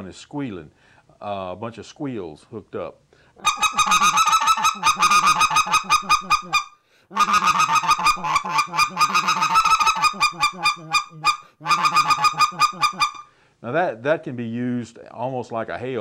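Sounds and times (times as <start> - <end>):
goose call rapid clucking: 3.4 - 13.3.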